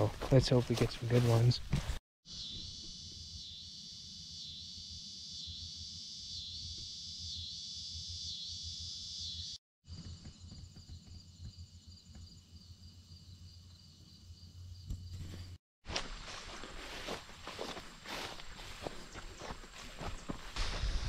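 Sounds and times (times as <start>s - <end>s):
insect trilling: 2.3s - 9.6s
insect chorus buzzing: 2.3s - 15.6s, 16.9s - 21.0s.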